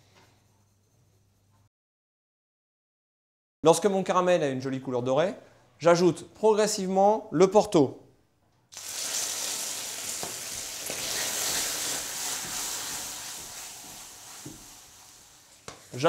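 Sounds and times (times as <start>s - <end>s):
liquid sizzling in hot pan: 8.7s - 16.0s.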